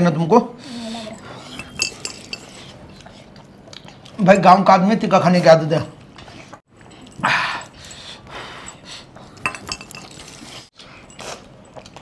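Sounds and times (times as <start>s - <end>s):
wet chewing and smacking: 1.3s - 4.5s, 10.6s - 12.0s.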